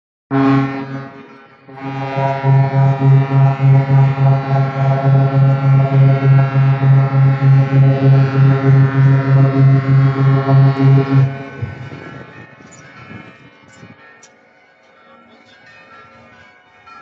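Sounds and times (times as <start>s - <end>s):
boat horn blasts: 0.3s - 12.2s.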